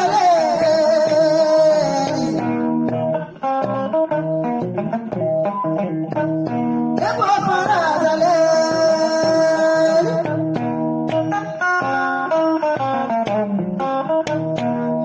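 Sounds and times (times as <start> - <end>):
person singing: 0.0 - 3.4, 7.0 - 13.2
plucked guitar: 0.0 - 15.0.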